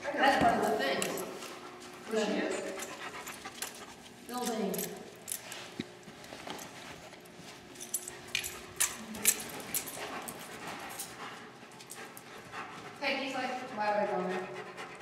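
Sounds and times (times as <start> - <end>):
dog claws clicking on hard floor: 7.8 - 11.2.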